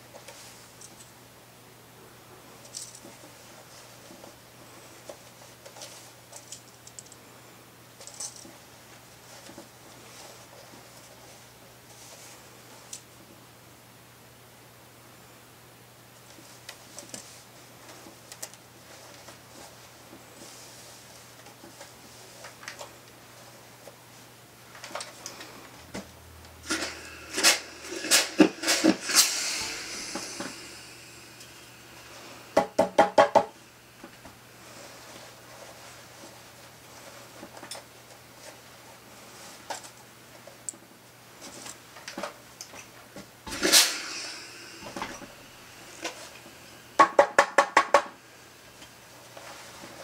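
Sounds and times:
iron steam hiss: 0:26.5 - 0:35.8, 0:43.4 - 0:50.0.

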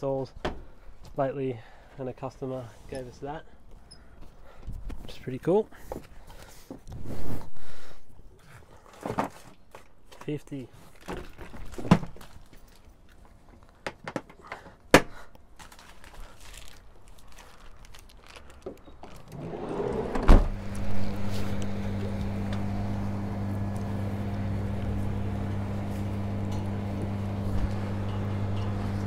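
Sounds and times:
sliding door thump: 0:19.4 - 0:21.1
steady low hum: 0:20.0 - 0:29.0.

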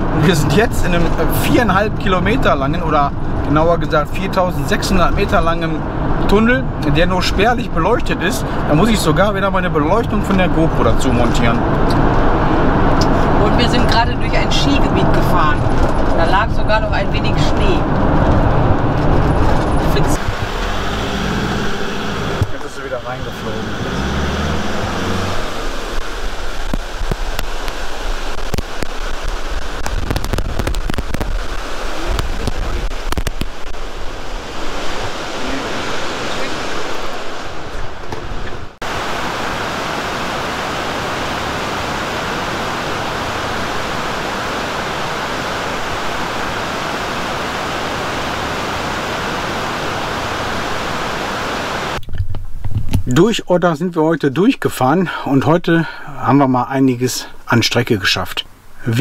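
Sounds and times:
waterfall rushing: 0:19.9 - 0:52.0.

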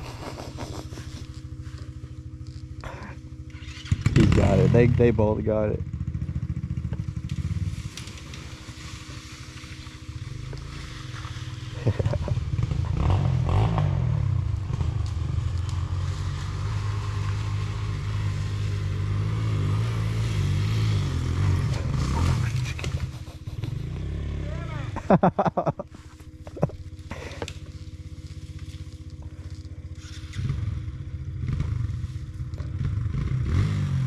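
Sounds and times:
dirt bike engine revving: 0:00.0 - 0:34.0.

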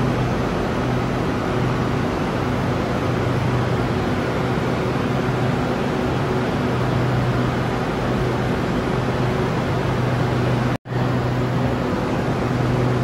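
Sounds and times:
train air-conditioning hum: 0:00.0 - 0:13.0.

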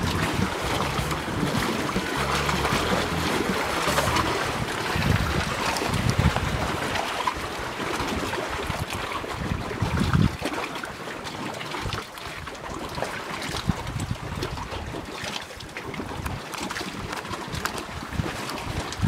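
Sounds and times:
wind buffeting microphone: 0:00.0 - 0:10.5, 0:13.5 - 0:15.0
choppy water splashing: 0:00.0 - 0:19.0.

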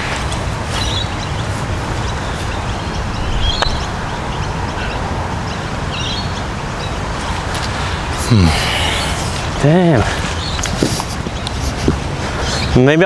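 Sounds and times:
wind noise on microphone: 0:00.0 - 0:08.3
birds chirping: 0:00.0 - 0:13.0.

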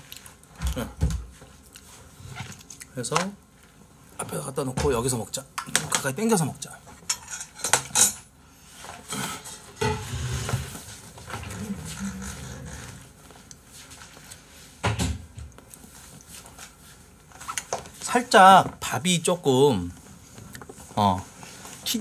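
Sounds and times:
chair rolling low scrape: 0:09.1 - 0:13.2.

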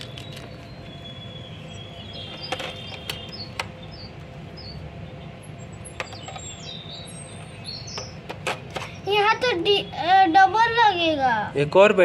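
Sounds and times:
bird chirps: 0:00.0 - 0:08.2.

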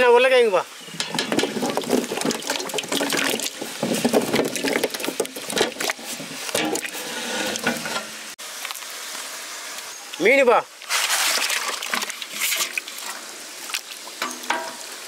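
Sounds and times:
potatoes knocking on metal: 0:00.9 - 0:07.0
potatoes splashing into water: 0:01.1 - 0:07.0, 0:10.9 - 0:14.9.

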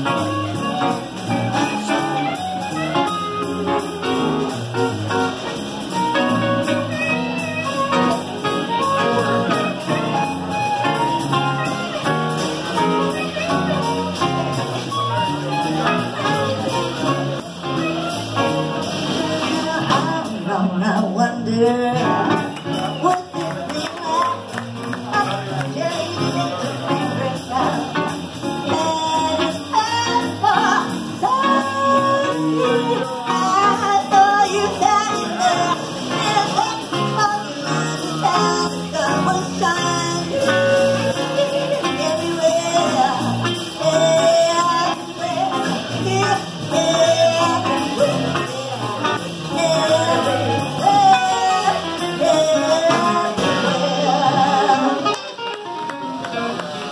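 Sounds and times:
acoustic guitar: 0:00.0 - 0:56.9
plucked upright bass: 0:00.0 - 0:56.9
woman singing: 0:18.4 - 0:55.4.

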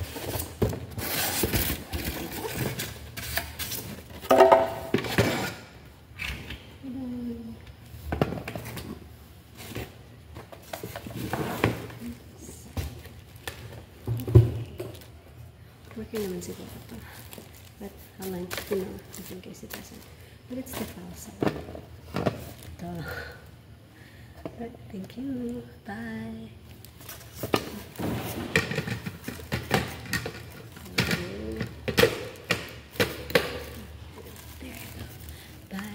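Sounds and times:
cardboard and plastic rustling: 0:00.0 - 0:05.7, 0:08.0 - 0:23.0, 0:25.0 - 0:35.9.

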